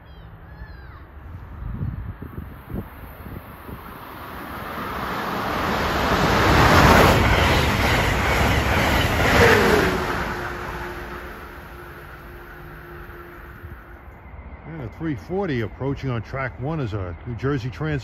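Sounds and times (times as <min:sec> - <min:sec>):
train wheels rushing on rail: 0:01.4 - 0:18.0
locomotive whine: 0:02.2 - 0:17.6.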